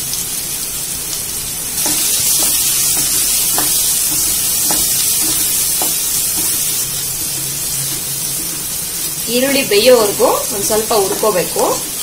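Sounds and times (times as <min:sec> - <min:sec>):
onions sizzling in hot oil: 0:00.0 - 0:12.0
spatula knocking and scraping pan: 0:01.8 - 0:09.2, 0:10.0 - 0:12.0.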